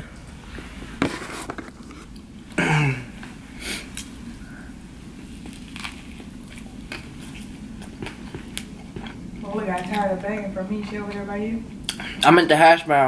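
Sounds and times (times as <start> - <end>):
chewing soft crunches: 5.2 - 10.0.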